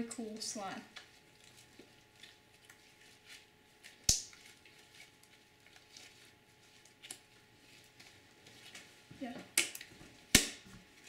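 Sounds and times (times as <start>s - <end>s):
slime squishing: 1.0s - 9.1s.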